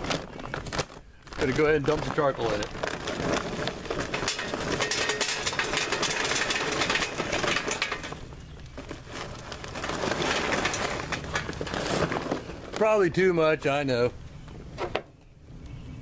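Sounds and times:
charcoal clattering into metal: 1.4 - 13.0.

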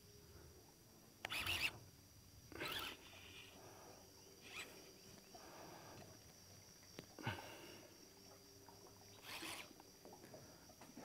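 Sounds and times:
fishing reel rasping: 1.2 - 1.8, 2.5 - 3.6, 4.4 - 4.9, 9.1 - 9.8.

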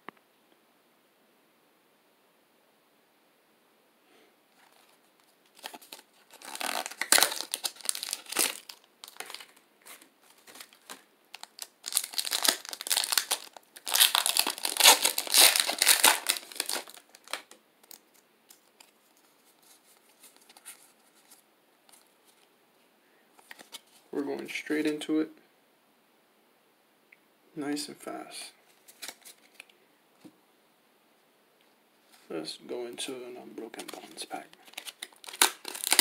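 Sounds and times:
foil wrapper crinkling and tearing: 4.6 - 19.0, 33.8 - 36.0.

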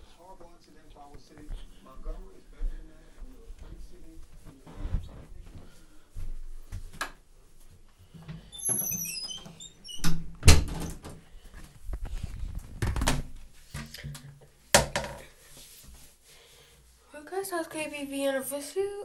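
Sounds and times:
knocks and thumps: 14.8 - 15.3.

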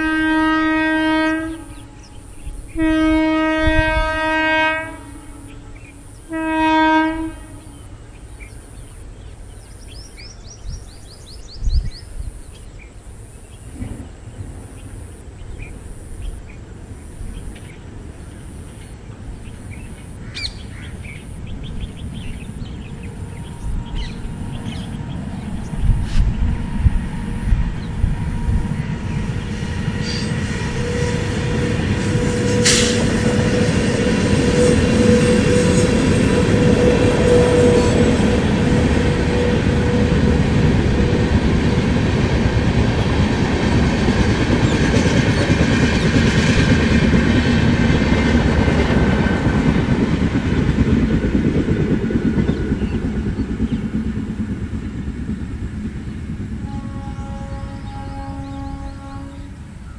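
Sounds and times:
train wheels clattering on rails: 20.5 - 58.1
steady whine: 21.3 - 43.0.

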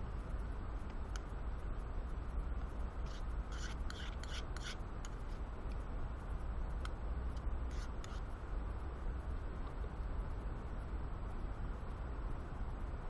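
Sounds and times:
spoon scraping metal mug: 3.1 - 4.8.

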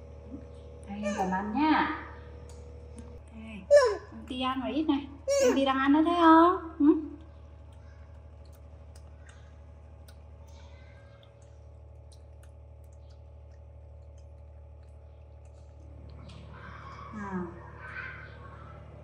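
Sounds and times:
steady low hum: 0.0 - 19.0
monkeys eating: 6.9 - 19.0
faint clicks and taps: 7.0 - 16.6.

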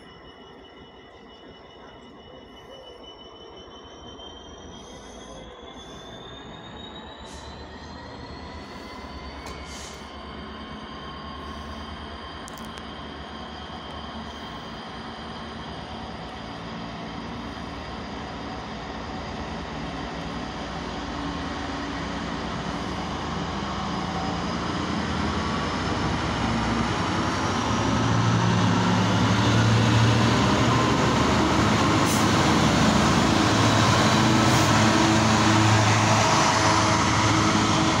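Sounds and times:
diesel locomotive engine: 0.0 - 38.0
wagons rumbling by: 8.2 - 38.0.

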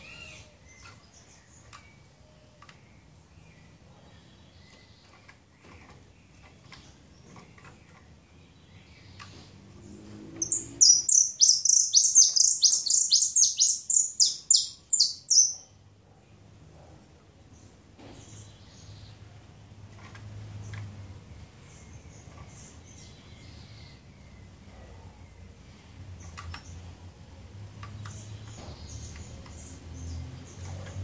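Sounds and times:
finch singing high notes: 10.4 - 15.6.

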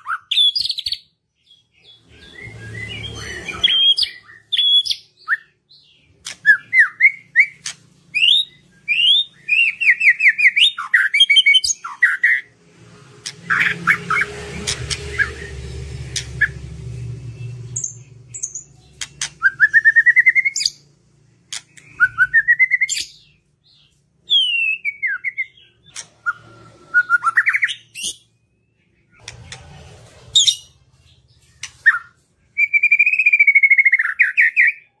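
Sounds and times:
bird singing trills: 0.0 - 12.5, 13.2 - 29.4, 30.3 - 35.0
sharp bird clicks: 6.1 - 6.8, 18.3 - 19.8, 21.5 - 22.2.

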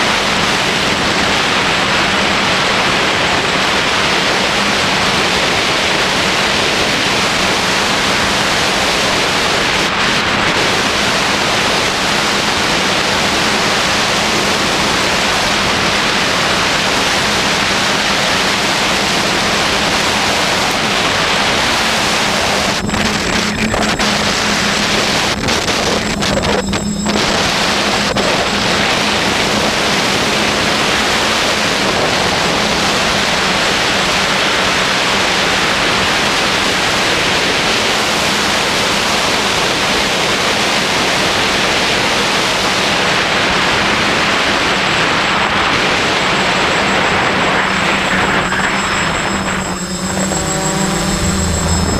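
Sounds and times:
low steady hum: 0.0 - 40.1.

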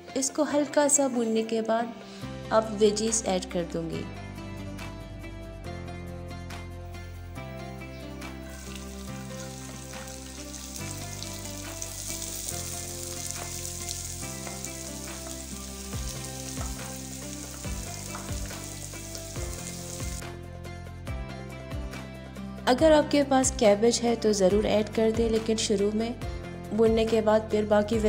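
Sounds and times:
hot oil sizzling in a wok: 8.4 - 20.2.

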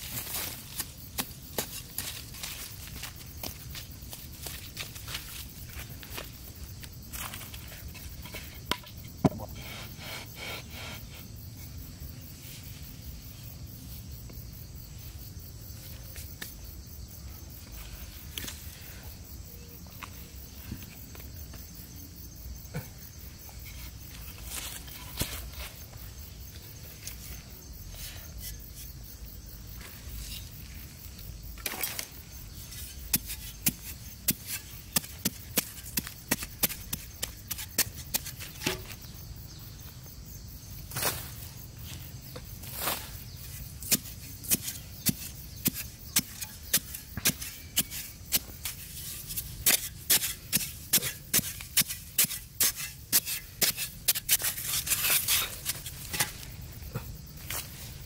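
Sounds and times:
digging blade striking dry soil: 0.0 - 9.5, 31.6 - 39.1, 42.4 - 58.0
dirt scraping: 0.0 - 11.7, 22.8 - 40.0, 40.8 - 58.0.

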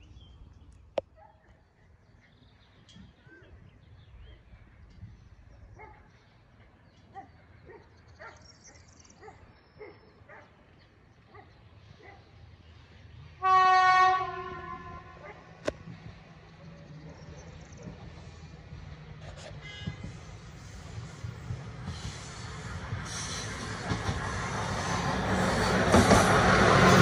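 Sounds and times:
train rumble: 10.6 - 27.0
train horn blast: 13.4 - 15.2, 19.4 - 20.2.

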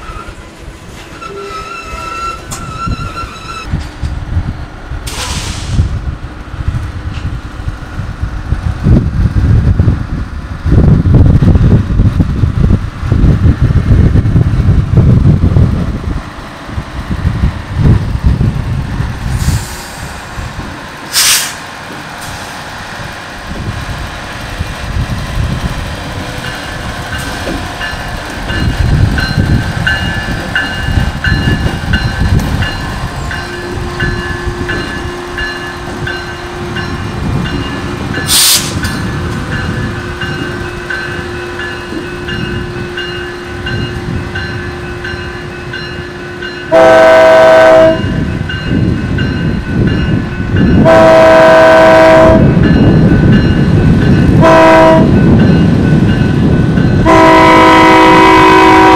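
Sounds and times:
wheels rumbling on rail: 0.0 - 58.9
locomotive horn blasts: 46.7 - 48.2, 50.8 - 52.6, 54.4 - 55.2, 57.0 - 58.9.

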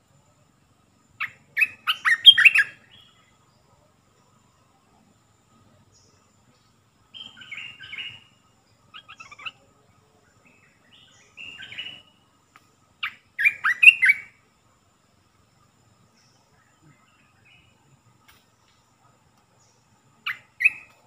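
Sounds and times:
bird singing whistled phrases: 1.2 - 3.2, 10.9 - 12.2, 13.0 - 14.3, 20.3 - 21.0.

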